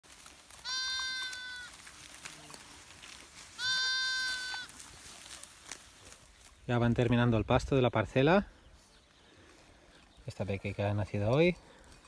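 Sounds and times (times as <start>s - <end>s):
lamb bleating: 0.6s - 1.8s, 3.6s - 4.8s.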